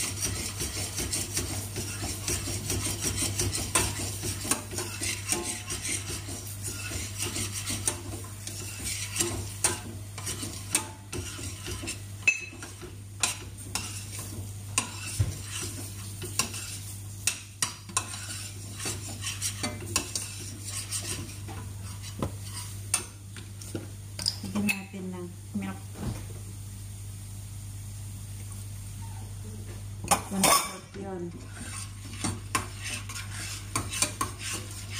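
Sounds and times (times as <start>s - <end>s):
spoon scraping saucepan: 0.0s - 24.9s, 30.1s - 34.9s
spoon clinking against pot: 12.2s - 12.8s.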